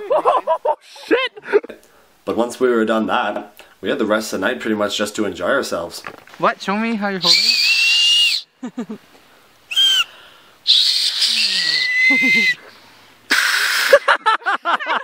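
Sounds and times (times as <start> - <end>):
laughter: 0.0 - 1.8, 8.6 - 9.0, 12.1 - 12.6, 13.7 - 15.0
hand whistling: 7.2 - 8.5, 9.7 - 10.1, 10.7 - 12.6, 13.3 - 14.0.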